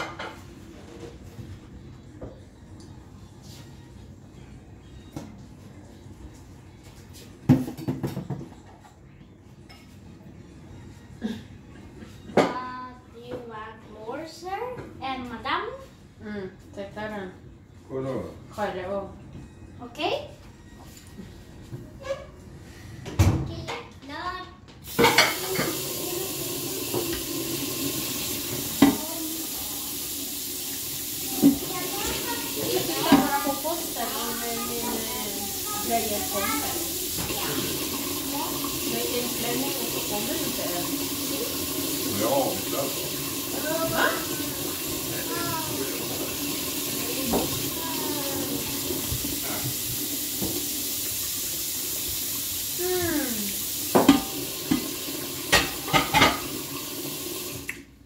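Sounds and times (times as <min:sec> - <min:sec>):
tap water running into sink: 0:24.8 - 0:57.9
plates and cutlery clinking: 0:24.9 - 0:25.9, 0:54.0 - 0:56.6.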